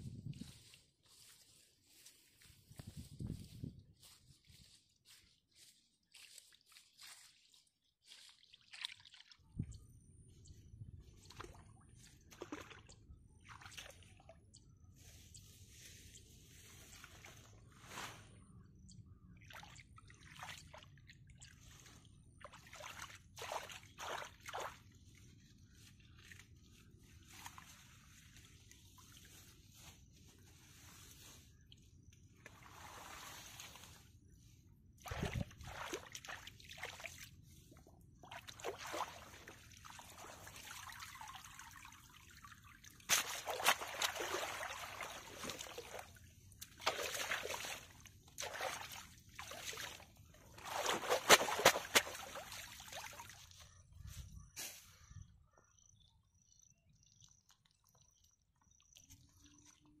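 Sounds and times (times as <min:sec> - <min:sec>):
shallow water splashing: 0:19.4 - 0:25.2, 0:35.0 - 0:53.6.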